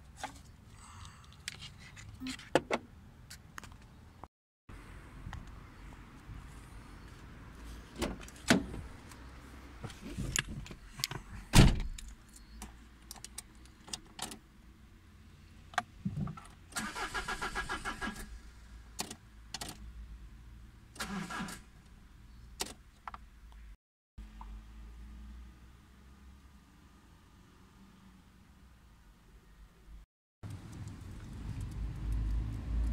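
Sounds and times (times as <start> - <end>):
car door opening and slamming: 11.5 - 12.0
engine starter cranking: 16.8 - 18.3.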